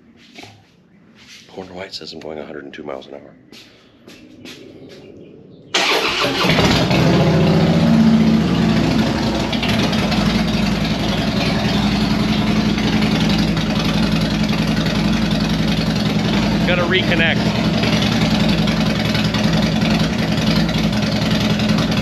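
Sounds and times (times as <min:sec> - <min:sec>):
motorcycle engine starting and idling: 0:05.7 - 0:22.0.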